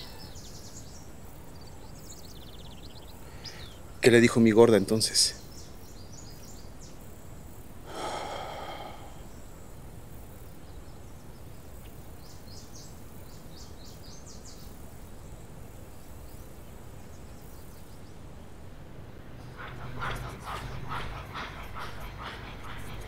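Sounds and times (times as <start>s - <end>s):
rural outdoor ambience: 0.0s - 23.0s
small birds chirping: 0.0s - 23.0s
breathy sigh: 7.8s - 9.4s.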